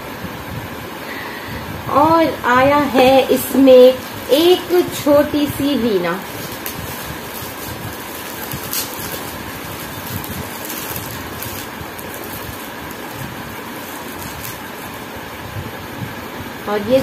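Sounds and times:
background fan whoosh: 0.0s - 17.0s
plastic wrapping crinkling: 2.8s - 15.3s.

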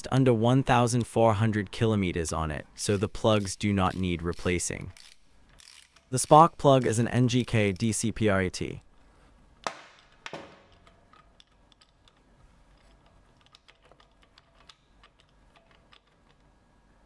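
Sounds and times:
metal spanner clicking: 2.8s - 8.0s, 10.0s - 16.4s.

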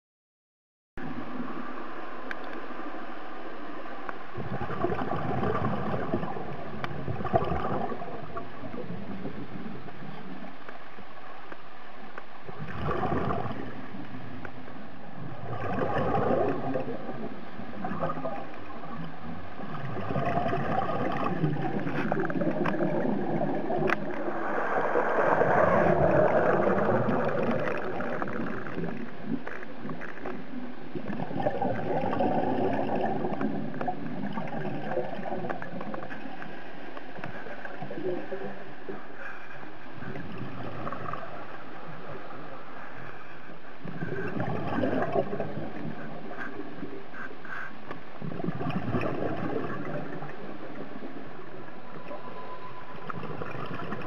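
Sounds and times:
steady underwater hiss: 1.0s - 54.0s
diver's bubbles gurgling underwater: 4.4s - 9.9s, 12.5s - 14.4s, 15.2s - 36.5s, 43.8s - 46.9s, 48.2s - 51.4s, 53.0s - 54.0s.

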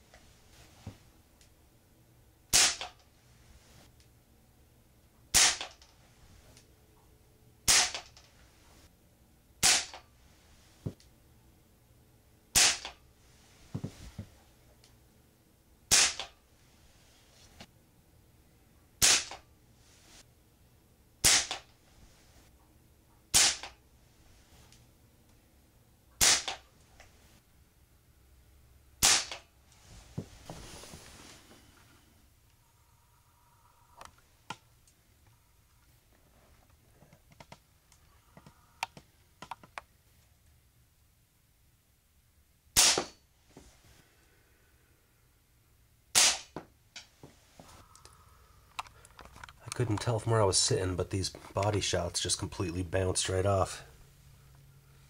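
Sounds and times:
pellet pistol shots: 2.5s - 3.0s, 5.3s - 5.8s, 7.7s - 8.1s, 9.6s - 10.0s, 12.5s - 13.0s, 15.9s - 16.3s, 19.0s - 19.4s, 21.2s - 21.7s, 23.3s - 23.7s, 26.2s - 26.6s, 29.0s - 29.4s, 42.8s - 43.2s, 46.1s - 46.6s
pellet pistol clicks: 21.2s - 21.7s, 23.3s - 23.8s, 26.2s - 26.6s.

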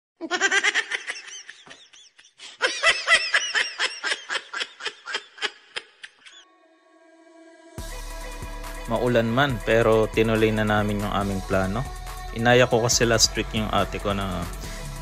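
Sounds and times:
high-pitched giggling: 0.2s - 6.4s.

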